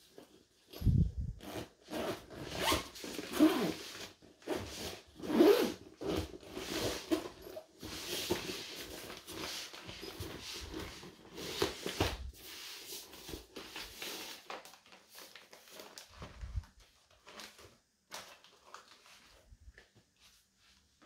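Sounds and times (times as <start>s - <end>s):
zipper being pulled: 0.8s - 7.3s.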